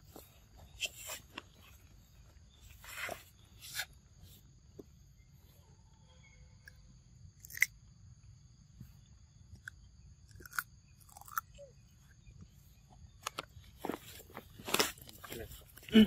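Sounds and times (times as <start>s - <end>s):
monkey crunching cucumber: 7.4s - 7.7s, 10.3s - 11.7s.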